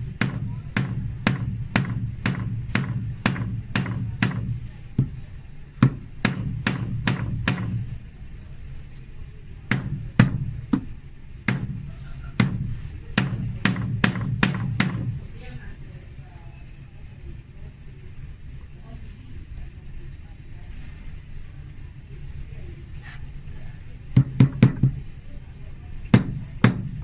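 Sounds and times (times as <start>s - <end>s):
hammer striking nails: 0.2s - 5.2s, 5.8s - 7.8s, 9.7s - 10.9s, 11.5s - 15.2s, 24.2s - 25.0s, 26.1s - 27.0s.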